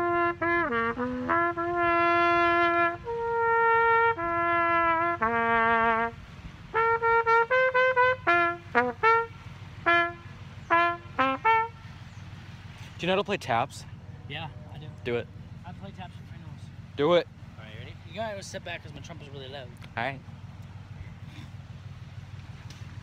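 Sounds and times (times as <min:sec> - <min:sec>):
trumpet playing a tune: 0:00.0 - 0:12.1.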